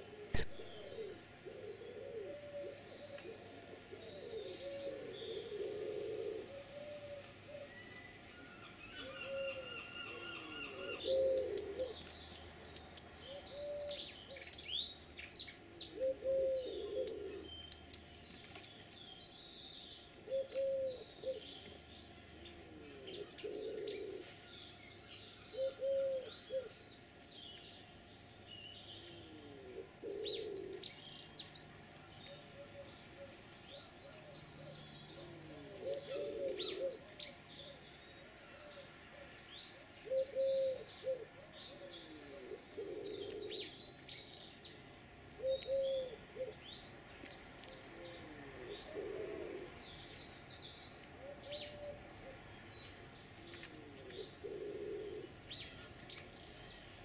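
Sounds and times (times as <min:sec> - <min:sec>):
pigeon cooing: 0:00.0 - 0:07.8, 0:09.0 - 0:12.0, 0:13.3 - 0:14.0, 0:15.8 - 0:17.5, 0:20.3 - 0:21.5, 0:22.8 - 0:24.3, 0:25.5 - 0:26.8, 0:29.0 - 0:30.9, 0:32.3 - 0:37.8, 0:40.0 - 0:43.8, 0:45.4 - 0:46.6, 0:48.0 - 0:49.8, 0:53.4 - 0:55.4
songbirds chirping and warbling: 0:00.0 - 0:57.0
bird sharp ticks: 0:17.7 - 0:18.0.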